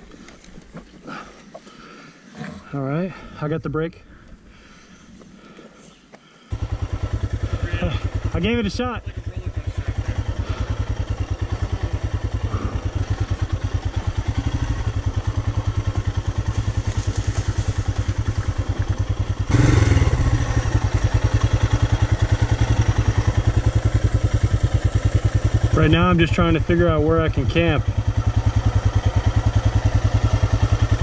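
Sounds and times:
motorcycle engine thumping: 9.6 - 25.8.

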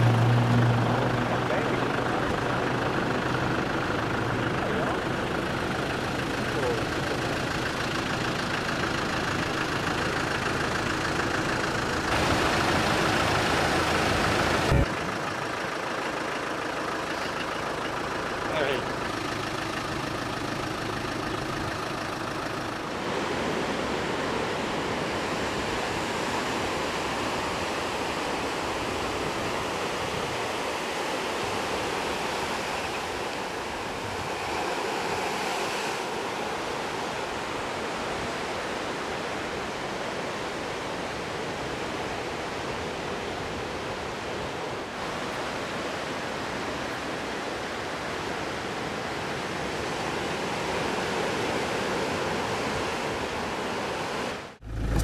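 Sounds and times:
vehicle engine idling: 0.0 - 24.4, 54.4 - 55.0.

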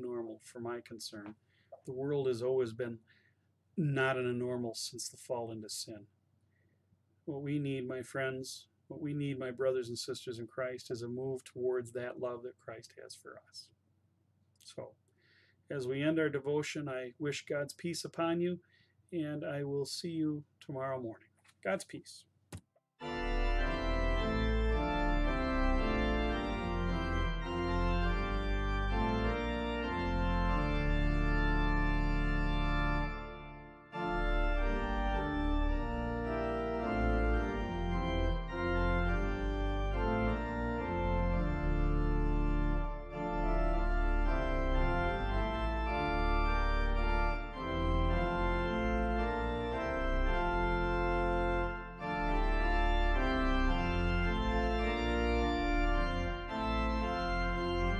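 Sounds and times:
organ chords: 0.0 - 2.9, 3.8 - 4.7, 23.0 - 57.9.

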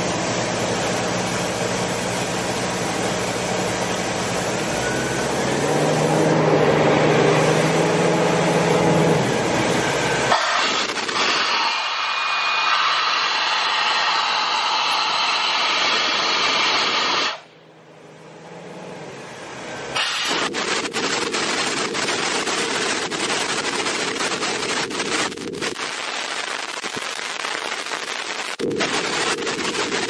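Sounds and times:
air compressor hissing: 7.4 - 17.5, 19.9 - 25.3
rapid crackling rattle: 20.3 - 30.0.

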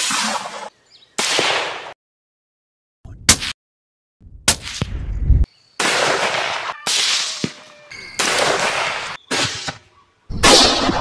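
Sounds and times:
rifle shots: 10.3 - 11.0
sharp crack: 10.3 - 11.0.

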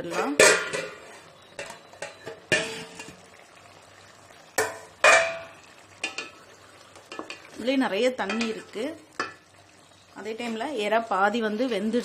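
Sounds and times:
metal pot lid clanking: 0.0 - 3.3, 4.6 - 6.4, 7.0 - 7.5, 8.2 - 9.4.

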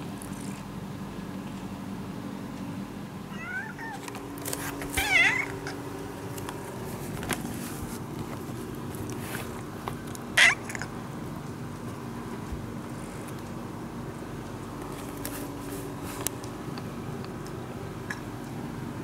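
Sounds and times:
cat meowing: 3.3 - 4.1, 4.9 - 5.8, 10.4 - 10.9.

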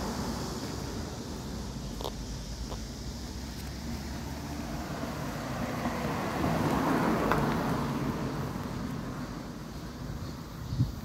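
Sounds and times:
car driving past: 3.1 - 10.0.

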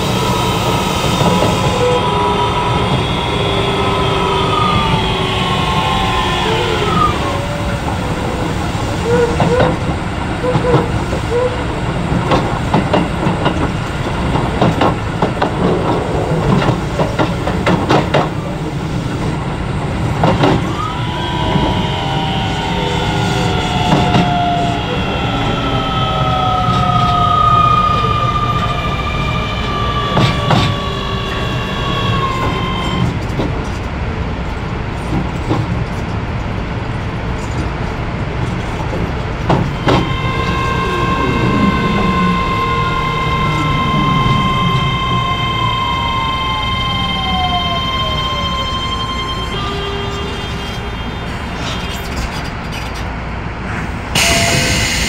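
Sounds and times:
traction-motor whine: 0.0 - 8.4, 39.6 - 52.4
train running rumble: 0.0 - 55.0
rail-joint clicks: 4.4 - 27.3, 30.0 - 46.2, 47.3 - 55.0
steady tones: 39.4 - 52.3.

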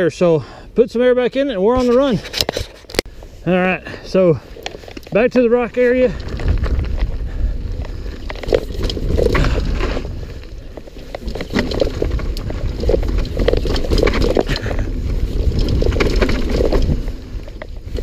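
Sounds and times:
bike tyres rumbling on rock: 3.9 - 18.0
bike knocking and clattering: 4.6 - 18.0.

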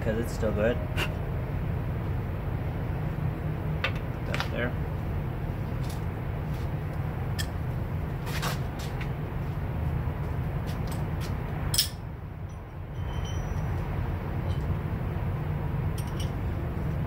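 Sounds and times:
steady low rumble: 0.0 - 17.0
metal tools clicking and knocking: 11.7 - 13.7, 16.0 - 16.4.

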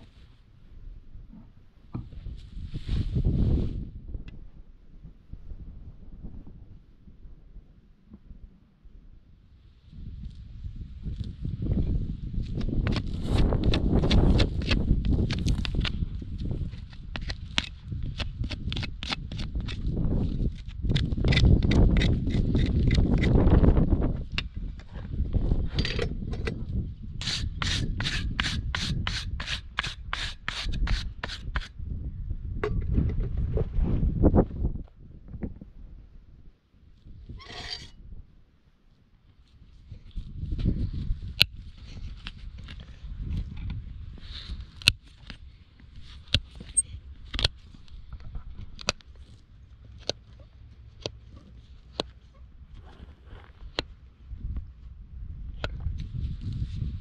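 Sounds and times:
hoof nippers snapping: 12.6 - 16.0, 16.7 - 19.9
hoof rasp filing a hoof: 20.6 - 23.4, 27.2 - 31.8, 37.4 - 37.9.

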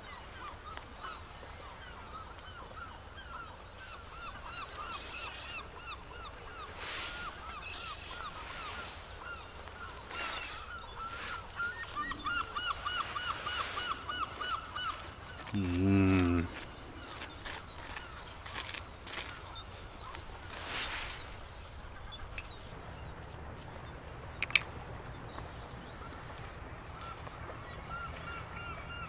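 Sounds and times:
flock of birds calling: 3.4 - 22.5.

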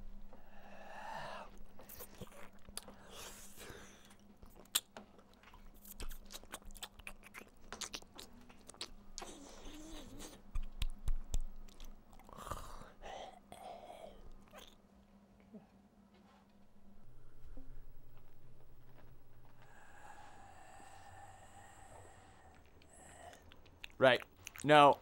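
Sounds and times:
soft humming: 0.0 - 24.6
lips sucking and smacking: 1.0 - 14.8, 19.6 - 24.7.

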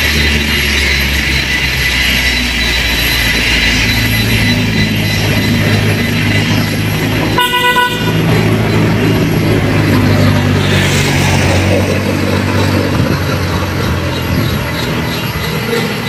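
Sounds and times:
vehicle engine running: 0.0 - 16.0
short horn toot: 7.4 - 8.3.

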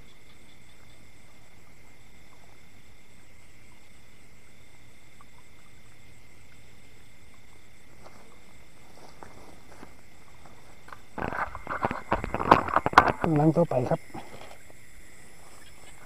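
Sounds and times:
crickets and insects trilling: 0.0 - 16.0
rustling: 7.8 - 16.0.

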